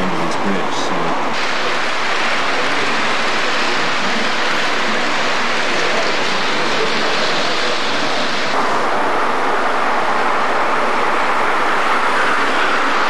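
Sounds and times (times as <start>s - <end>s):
model train wheels rumbling on rails: 0.0s - 8.6s.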